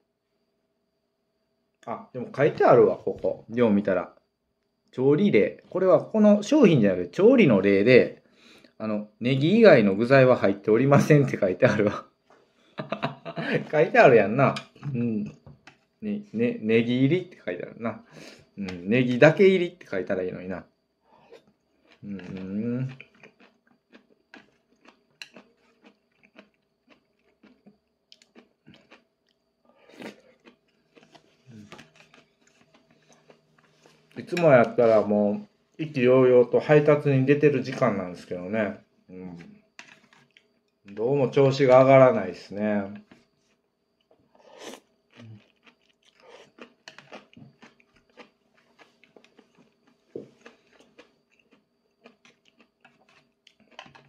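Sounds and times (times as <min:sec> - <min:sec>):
man chewing food: 0:21.0 - 0:34.8, 0:39.3 - 0:41.0, 0:43.0 - 0:54.0.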